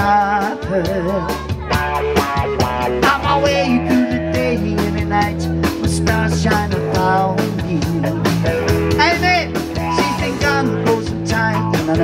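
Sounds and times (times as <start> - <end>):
man singing into microphone: 0.0 - 1.5, 3.0 - 8.5, 9.8 - 12.0
drums: 0.0 - 12.0
electric guitars: 0.0 - 12.0.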